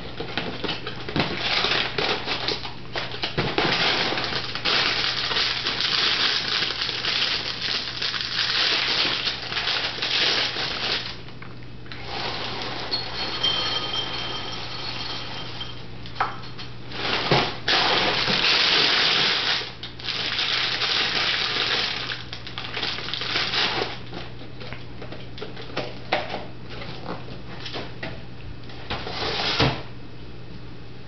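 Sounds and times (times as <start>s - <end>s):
plastic bag crinkling: 0.4s - 11.3s, 16.9s - 24.3s.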